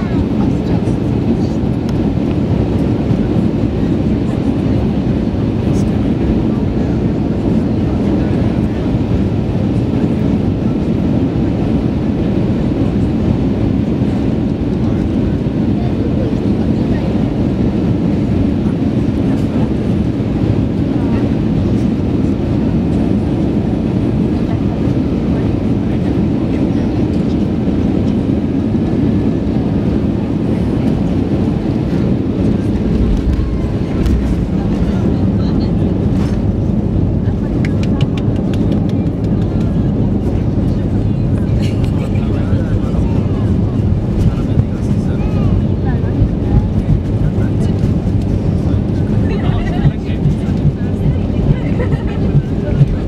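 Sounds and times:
airplane cabin rumble: 0:00.0 - 0:53.0
air rushing past fuselage: 0:31.2 - 0:37.0.

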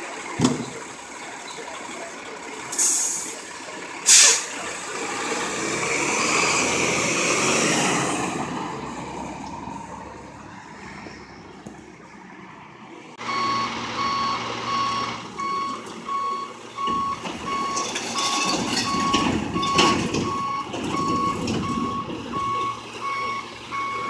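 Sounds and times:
truck engine pulling away: 0:00.0 - 0:24.0
air brake hiss: 0:02.7 - 0:03.4, 0:04.0 - 0:04.6.

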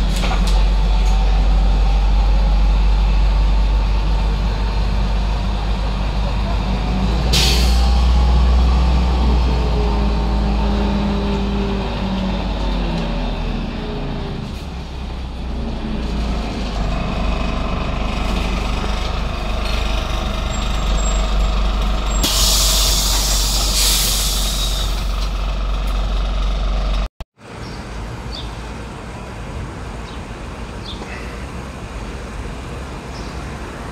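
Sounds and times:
bus engine rumble: 0:00.0 - 0:33.9
compressed air hiss: 0:22.2 - 0:24.9.

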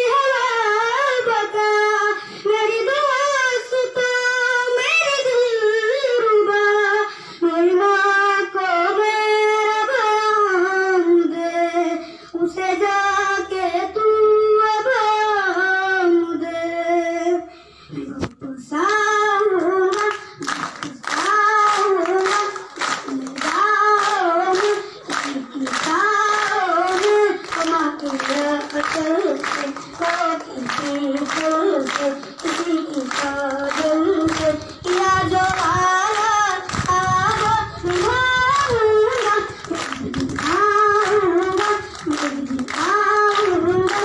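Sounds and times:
boy singing: 0:00.0 - 0:44.0
people clapping along: 0:18.8 - 0:44.0.

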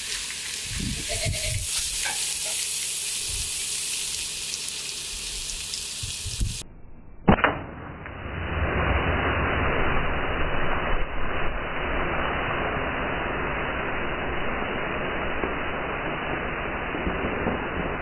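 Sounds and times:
loud hiss of escaping gas: 0:00.0 - 0:06.6.

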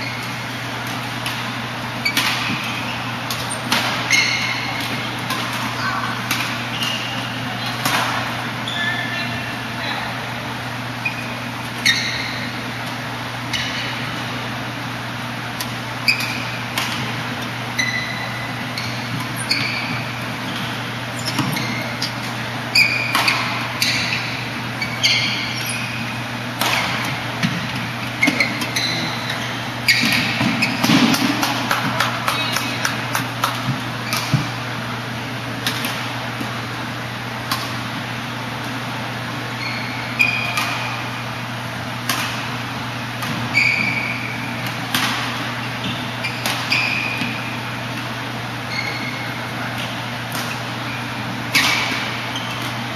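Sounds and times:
shoes squeaking on court: 0:00.0 - 0:10.0, 0:10.8 - 0:14.2, 0:15.0 - 0:35.0, 0:39.5 - 0:52.9
racket hitting shuttlecock: 0:00.2 - 0:07.0, 0:15.5 - 0:25.8, 0:26.6 - 0:34.6, 0:40.3 - 0:45.7, 0:46.4 - 0:48.1, 0:49.7 - 0:50.8, 0:51.4 - 0:52.8.

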